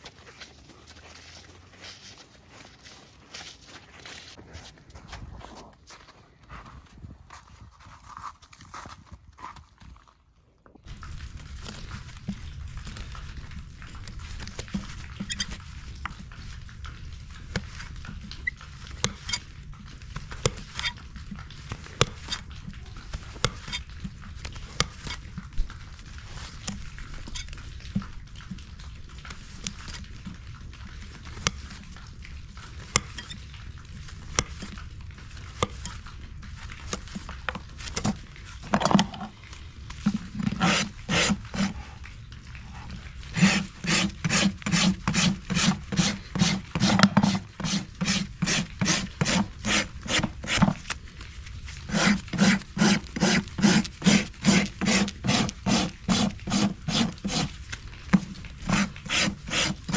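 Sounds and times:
rasp filing a horse's hoof: 40.4 - 41.8, 43.4 - 50.8, 51.9 - 57.5, 58.6 - 59.9.

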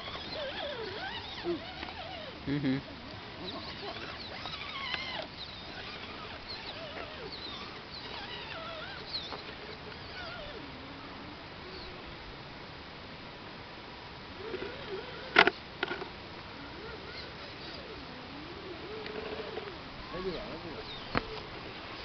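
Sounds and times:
high animal chirping and squeaks: 0.0 - 2.4, 3.4 - 10.6, 16.8 - 17.9
faint steady hiss: 0.0 - 22.0.

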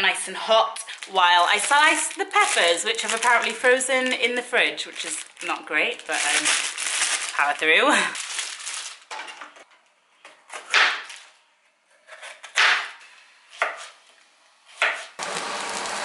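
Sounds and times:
knife slicing pepper on chopping board: 14.7 - 15.2.

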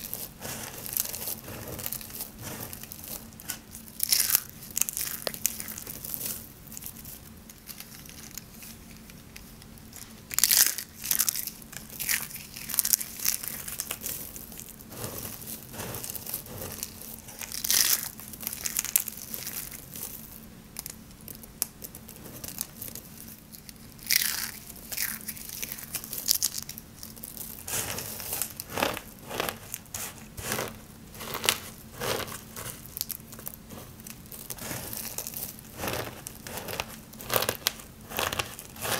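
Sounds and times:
soap curls crunching in hands: 0.0 - 9.0, 10.0 - 38.9.

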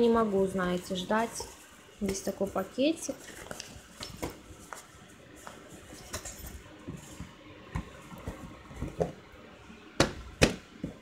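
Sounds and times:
cardboard box and packaging rustling: 1.1 - 9.3.

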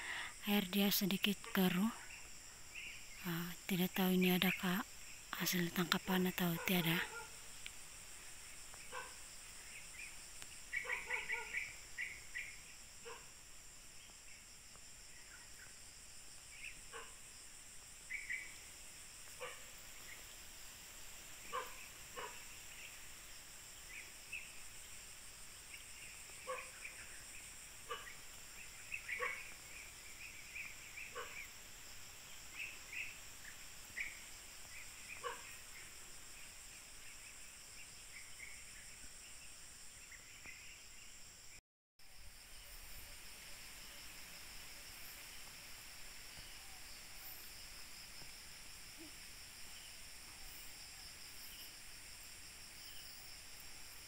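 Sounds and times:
high insect drone: 0.0 - 54.0.

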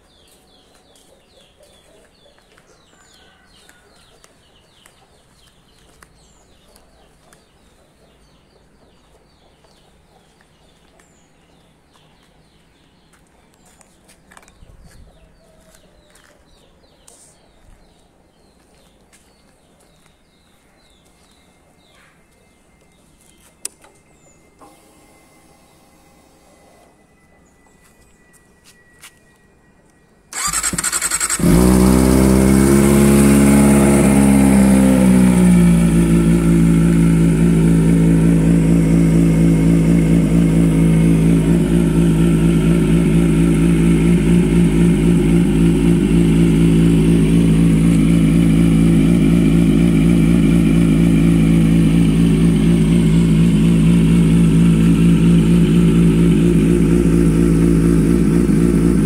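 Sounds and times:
engine starter turning: 30.3 - 33.6
motorcycle engine idling: 30.3 - 59.0.

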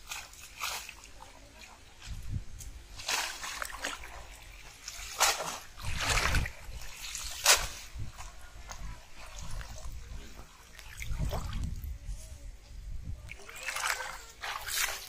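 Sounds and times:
net splashing in muddy water: 0.0 - 1.7, 2.9 - 8.3, 13.3 - 15.0.

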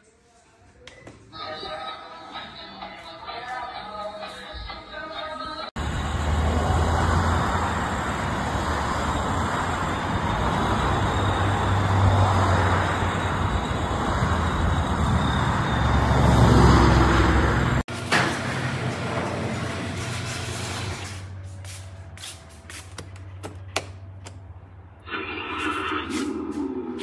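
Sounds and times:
highway traffic rushing: 5.7 - 20.1, 21.2 - 27.0
vehicle passing: 5.8 - 17.8, 24.0 - 27.0.

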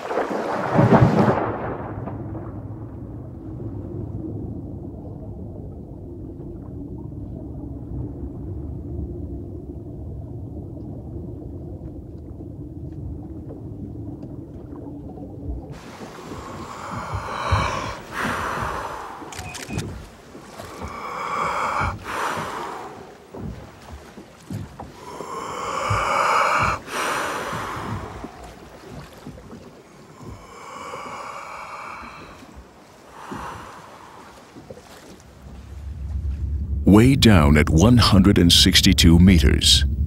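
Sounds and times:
muffled underwater rumble: 1.3 - 40.0
person taking deep breaths: 15.8 - 19.7, 20.7 - 23.2, 24.9 - 28.6, 29.9 - 34.6.

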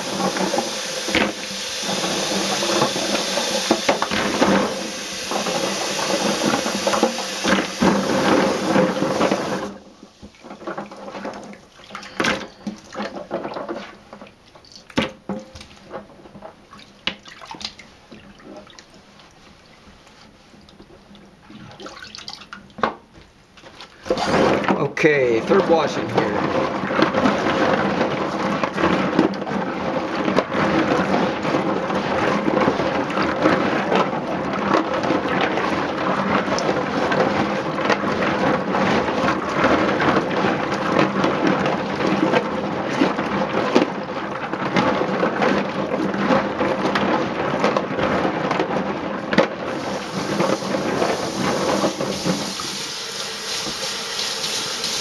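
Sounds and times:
running water hiss: 0.0 - 9.7, 49.7 - 55.0
water sloshing: 15.6 - 19.9, 20.7 - 22.8.

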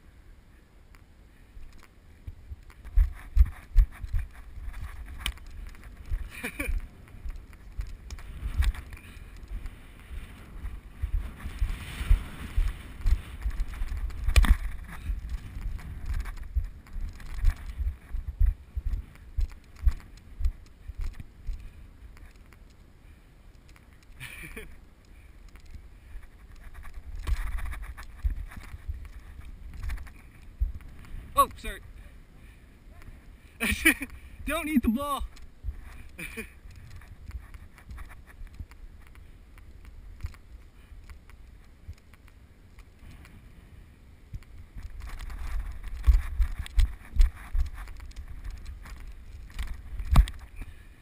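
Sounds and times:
rustling grass: 0.0 - 51.0
wind: 0.0 - 51.0
muffled rumble: 2.1 - 22.5
low bumps on camera housing: 44.3 - 50.7.

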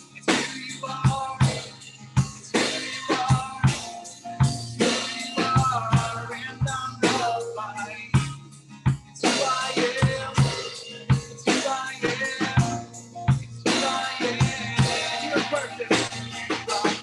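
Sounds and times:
acoustic guitar strumming: 0.0 - 17.0
drum kit beat: 0.0 - 17.0
man and woman singing: 0.2 - 1.7, 2.6 - 3.8, 9.2 - 12.9, 13.6 - 17.0.

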